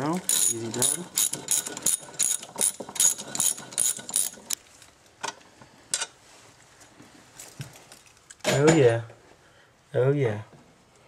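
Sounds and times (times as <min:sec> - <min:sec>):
ratchet wrench clicking: 0:00.2 - 0:04.5.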